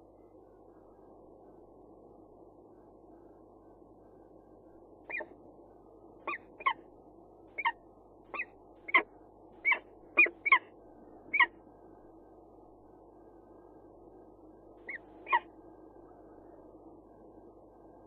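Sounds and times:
falcon calling: 5.1s - 5.3s, 6.3s - 6.8s, 7.6s - 10.7s, 11.3s - 11.5s, 14.9s - 15.5s.

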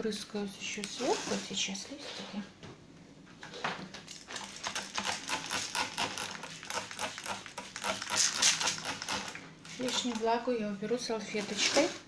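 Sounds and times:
spray bottle spritzes: 6.9s - 9.1s.

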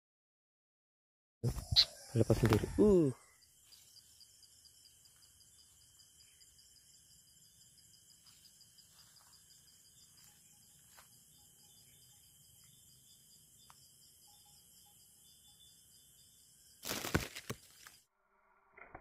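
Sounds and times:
night insects trilling: 1.5s - 18.0s
leafy branches rustling: 16.8s - 18.0s.

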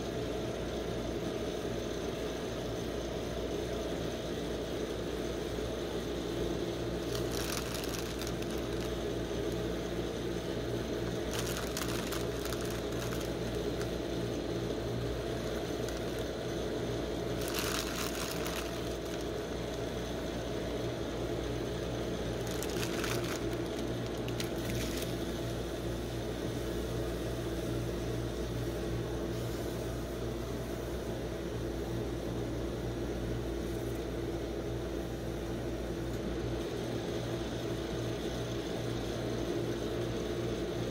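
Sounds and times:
cold plate machine hum: 0.0s - 40.9s
foil snack bags rustling: 7.0s - 9.8s, 10.8s - 20.0s, 22.2s - 25.3s.

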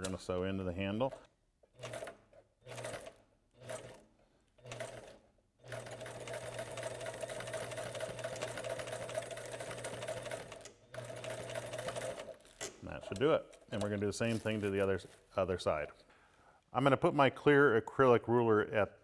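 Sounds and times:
sewing machine stitching: 0.9s - 12.8s.

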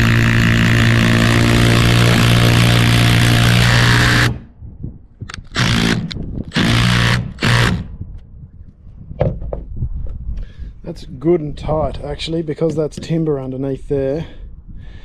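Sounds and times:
power drill driving screw: 0.0s - 4.4s, 5.3s - 7.9s.

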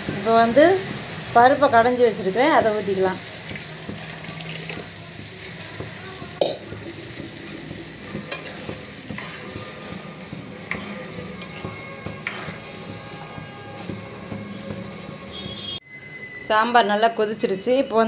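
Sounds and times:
steady sizzle: 0.0s - 15.8s
ladle stirring in pan: 2.6s - 15.8s
food pouring into pan: 3.2s - 5.1s
ladle knocking against pan: 5.8s - 15.7s.

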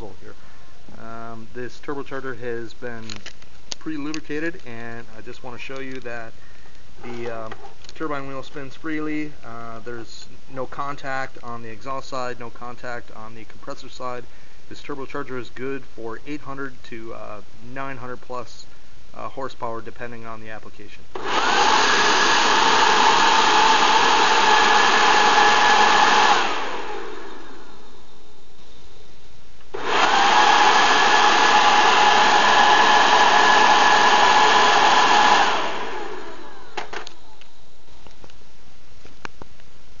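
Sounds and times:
turbocharger whine: 21.2s - 28.5s, 29.7s - 38.1s.

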